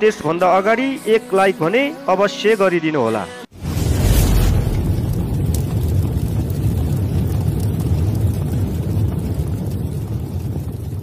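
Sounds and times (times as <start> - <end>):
deep explosion rumble: 3.6 - 11.0.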